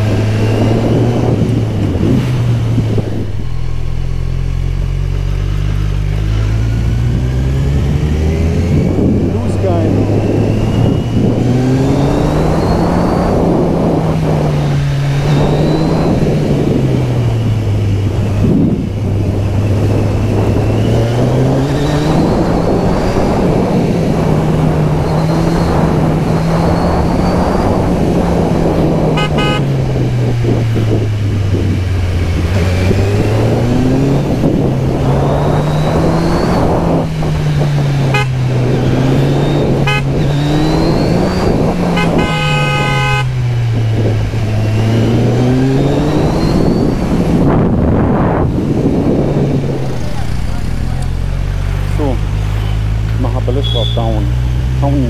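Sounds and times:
wind rushing: 0.0s - 5.4s, 6.1s - 53.0s
motorcycle engine revving: 0.0s - 55.0s
vehicle horn beeping: 29.2s - 29.8s, 38.1s - 38.5s, 39.8s - 40.2s, 41.9s - 43.4s, 53.6s - 54.2s.

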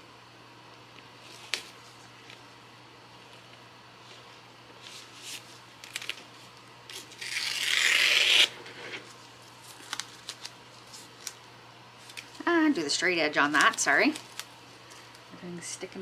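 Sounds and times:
tape crinkling and rubbing: 1.2s - 2.5s, 3.2s - 12.6s, 13.4s - 15.2s
tape tearing: 5.2s - 6.2s, 6.9s - 9.0s.

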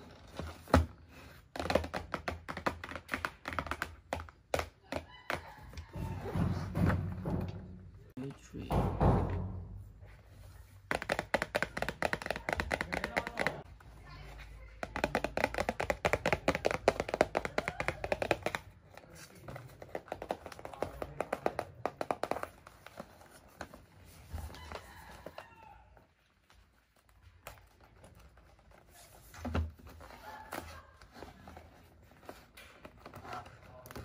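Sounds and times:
dull knock: 8.7s - 9.7s
fingernails tapping on cardboard box: 10.9s - 13.6s.

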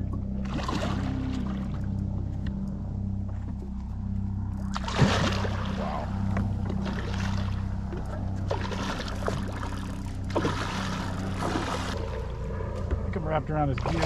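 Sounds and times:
boat motor humming: 0.0s - 14.0s
fish splashing at water surface: 4.7s - 5.8s.

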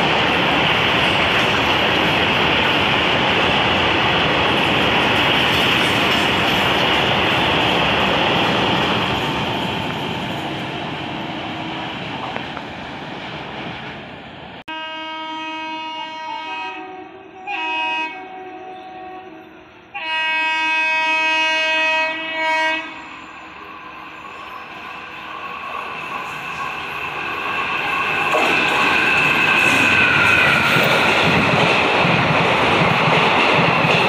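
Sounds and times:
locomotive horn blasts: 14.7s - 23.1s.

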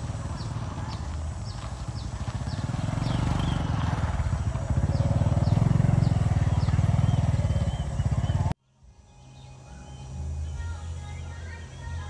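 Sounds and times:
diesel train engine throbbing: 0.0s - 8.5s
bird chirps: 0.0s - 12.0s.

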